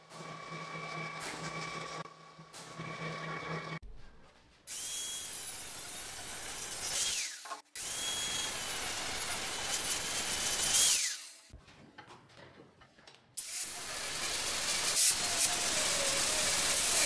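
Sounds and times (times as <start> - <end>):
angle grinder grinding steel: 0.0 - 3.8, 13.4 - 17.0.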